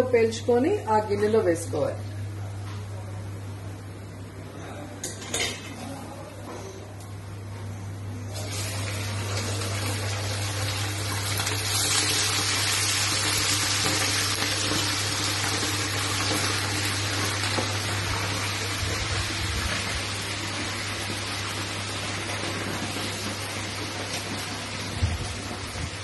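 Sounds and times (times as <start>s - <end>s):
chicken deep-frying in oil: 8.3s - 26.0s.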